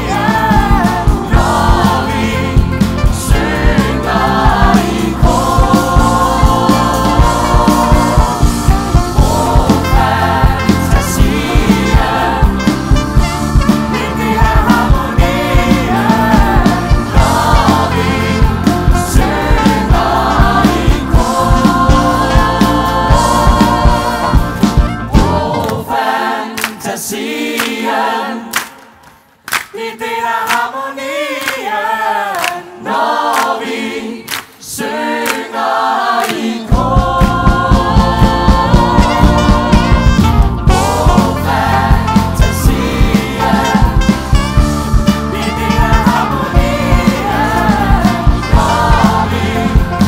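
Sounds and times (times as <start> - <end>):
band with steady beat: 0.0 - 25.8, 36.6 - 50.0
large ensemble singing in chorus: 0.0 - 50.0.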